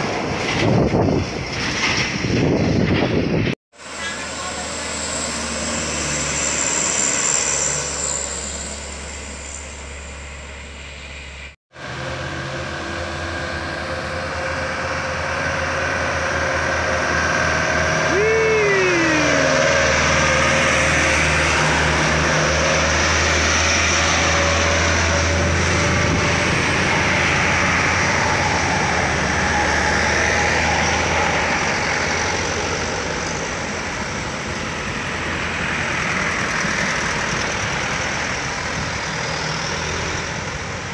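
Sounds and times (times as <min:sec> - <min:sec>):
diesel truck engines labouring: 0:00.0 - 0:40.9.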